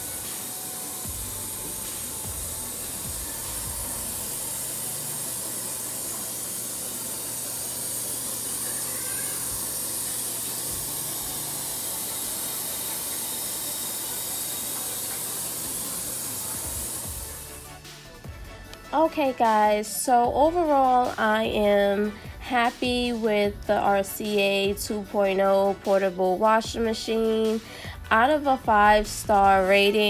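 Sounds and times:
running water hiss: 0:00.0 - 0:17.9
washing machine hum: 0:00.0 - 0:18.4.

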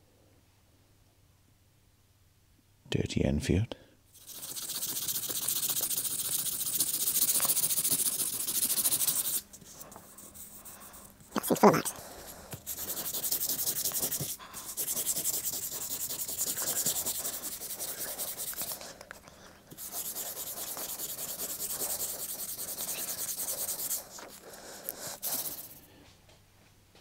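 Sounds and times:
sandpaper rubbing on metal: 0:04.2 - 0:09.4, 0:12.6 - 0:18.8, 0:19.7 - 0:25.8.

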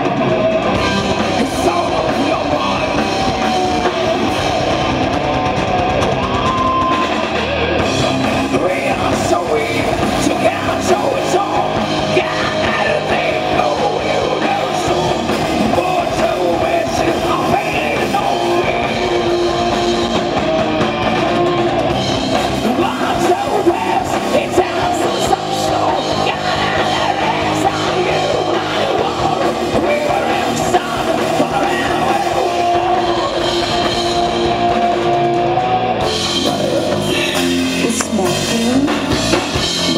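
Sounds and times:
distorted electric guitars: 0:00.0 - 0:39.9
drum kit: 0:00.0 - 0:39.9
woman singing: 0:37.8 - 0:39.2.

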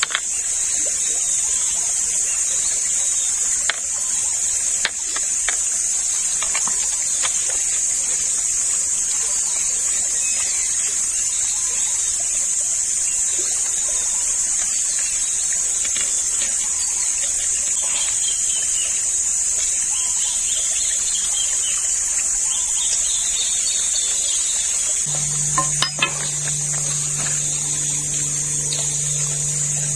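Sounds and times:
insects droning: 0:00.0 - 0:29.9
bamboo poles clicking and creaking: 0:04.8 - 0:07.7.

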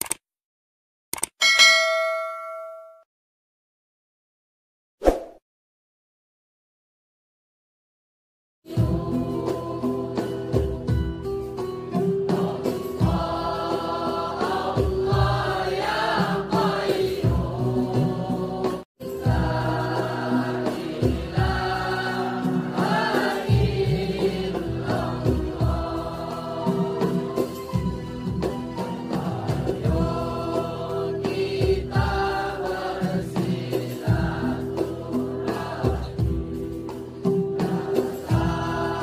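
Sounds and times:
choir singing: 0:08.7 - 0:10.9, 0:12.0 - 0:28.0, 0:28.8 - 0:39.0.

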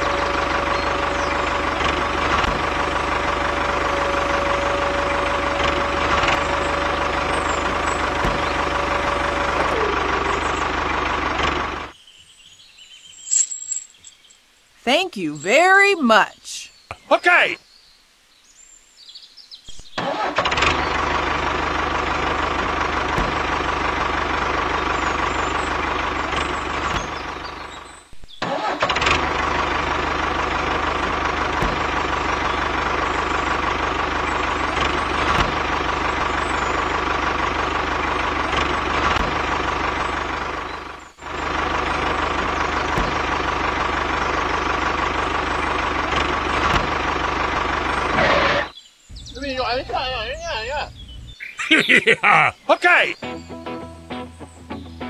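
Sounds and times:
tractor engine running: 0:00.0 - 0:12.0, 0:13.1 - 0:14.2, 0:19.7 - 0:55.0.

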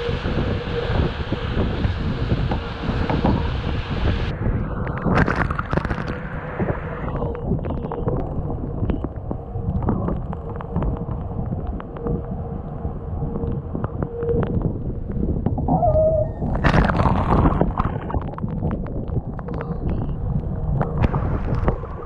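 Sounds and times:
wind buffeting microphone: 0:00.0 - 0:22.0
water rushing past hull: 0:15.6 - 0:22.0.

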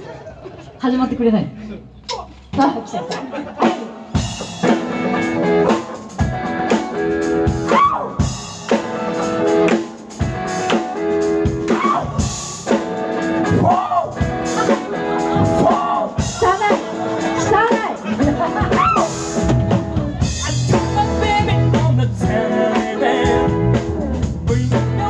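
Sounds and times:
drum kit: 0:02.0 - 0:25.0
electric guitar: 0:04.1 - 0:25.0
person singing lead vocals: 0:13.4 - 0:25.0.

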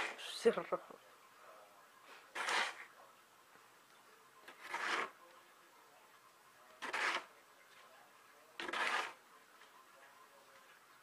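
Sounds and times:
snow shovel scraping pavement: 0:02.3 - 0:02.9, 0:04.5 - 0:05.2, 0:06.8 - 0:07.3, 0:08.6 - 0:09.2.

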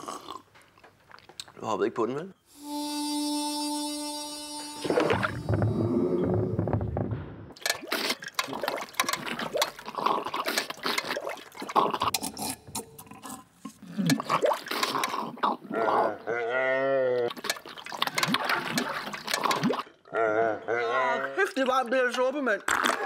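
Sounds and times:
person slurping soup: 0:07.7 - 0:16.2, 0:17.2 - 0:19.9.

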